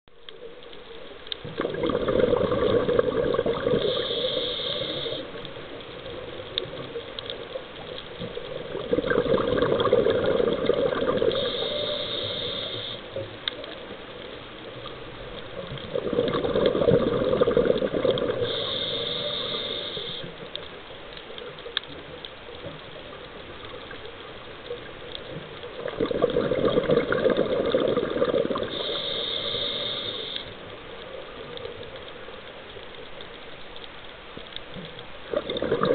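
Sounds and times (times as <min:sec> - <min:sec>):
diver breathing through regulator: 0:03.6 - 0:05.4, 0:11.2 - 0:13.2, 0:18.3 - 0:20.4, 0:28.6 - 0:30.6.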